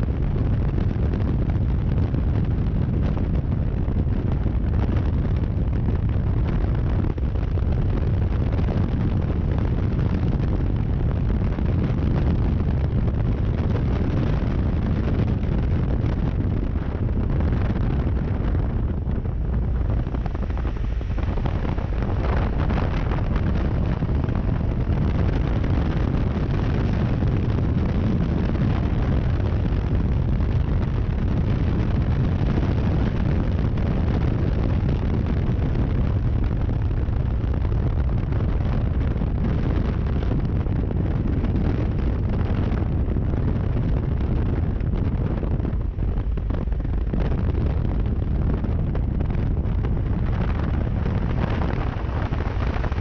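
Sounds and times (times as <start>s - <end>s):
wind buffeting microphone: 0.0s - 53.0s
motorcycle engine rumbling: 14.5s - 27.8s.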